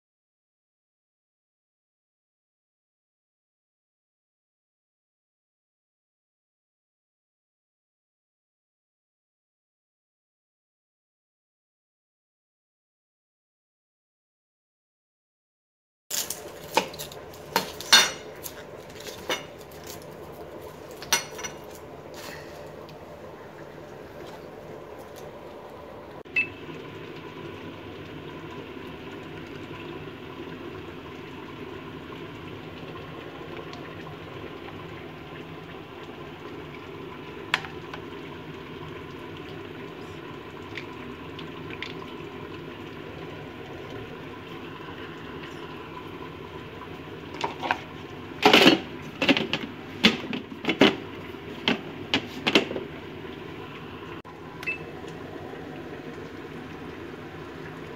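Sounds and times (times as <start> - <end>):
low background hum: 16.1 - 57.9
knocks and clatter of bowl and lid: 48.4 - 52.9.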